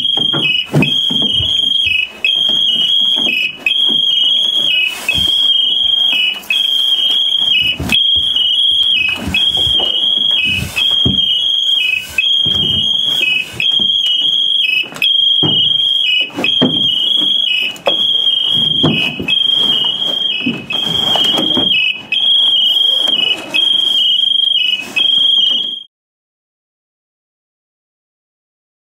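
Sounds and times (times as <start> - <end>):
two-pitch electronic alarm: 0.0 - 25.9.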